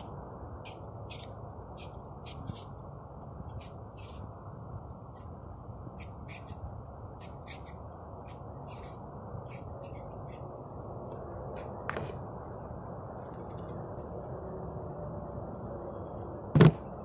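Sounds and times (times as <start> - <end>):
blade scraping potato skin: 0.6 - 2.7, 3.5 - 4.3, 6.0 - 6.6, 7.2 - 10.5.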